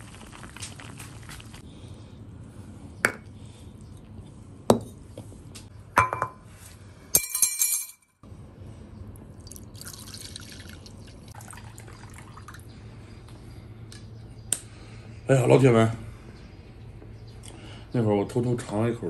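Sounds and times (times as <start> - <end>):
dishes knocking on tiled table: 6.0 - 6.4
glass bowl clinking: 6.0 - 6.4
water pouring into bowl: 9.4 - 12.6.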